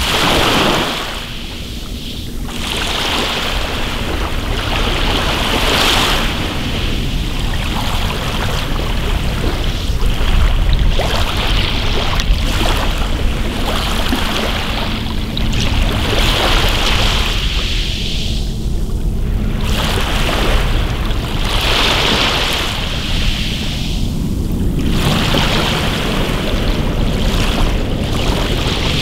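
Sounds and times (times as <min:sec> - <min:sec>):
waves washing over pebble beach: 0:00.0 - 0:01.8, 0:19.6 - 0:29.0.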